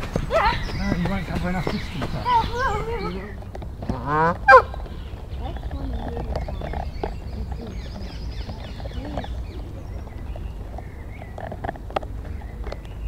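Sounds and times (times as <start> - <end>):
faint distant voices: 0.0 - 13.0
fowl call: 4.0 - 4.8.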